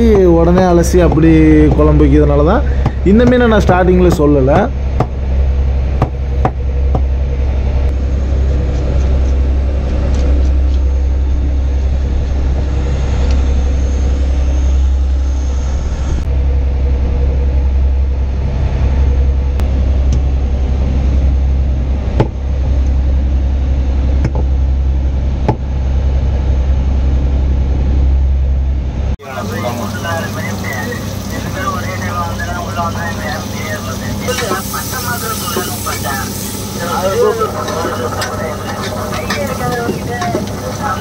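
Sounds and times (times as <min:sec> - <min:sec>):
boat engine droning: 0:00.0 - 0:41.0.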